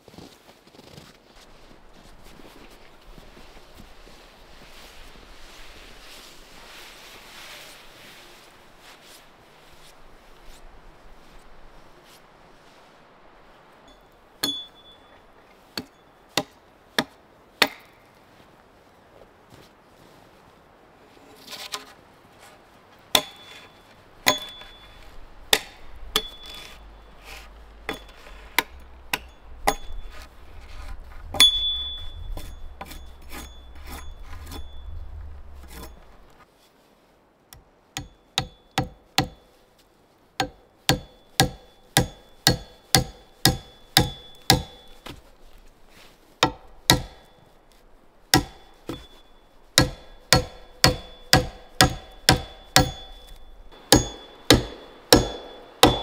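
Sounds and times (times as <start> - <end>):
axe blows on wood: 48.4 - 56.0.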